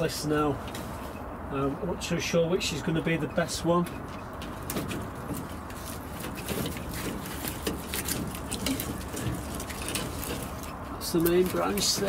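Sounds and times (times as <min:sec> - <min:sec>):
dry vine canes rustling and clicking: 0:03.8 - 0:12.0.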